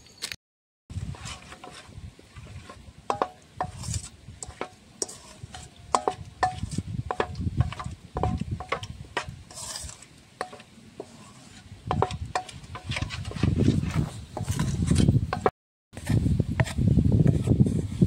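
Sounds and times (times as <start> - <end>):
wooden spatula scraping metal bowl: 0.9 - 18.0
wood knocking on metal: 3.1 - 3.8, 5.9 - 9.3, 11.9 - 13.4.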